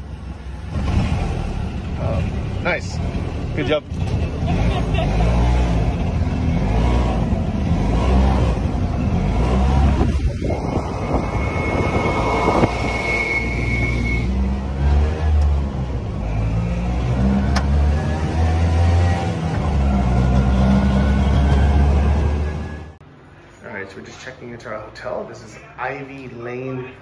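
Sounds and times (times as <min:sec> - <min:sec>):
auto-rickshaw engine running: 0:00.0 - 0:23.0
road and wind noise: 0:00.0 - 0:23.6
thin high whine: 0:10.5 - 0:14.3.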